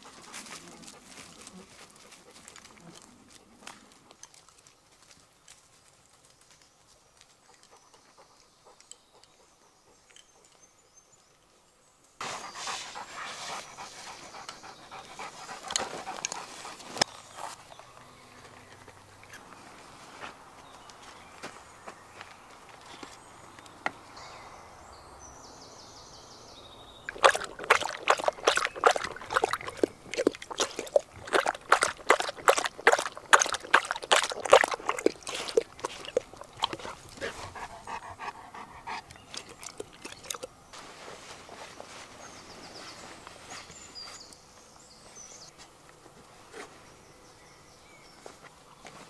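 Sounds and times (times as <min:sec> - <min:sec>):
dog lapping water from metal bowl: 0:27.1 - 0:37.4, 0:39.0 - 0:40.5.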